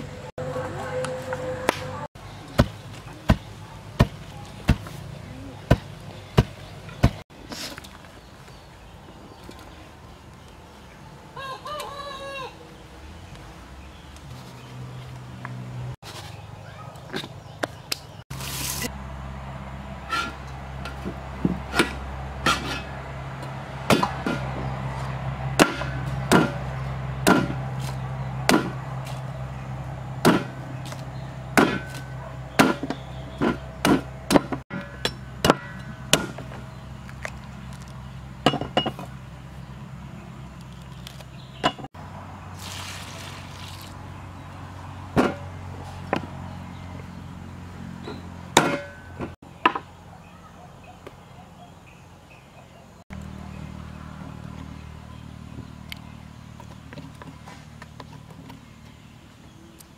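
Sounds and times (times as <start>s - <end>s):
knife whacking coconut: 27.3s - 27.6s, 28.5s - 28.8s, 30.2s - 30.5s.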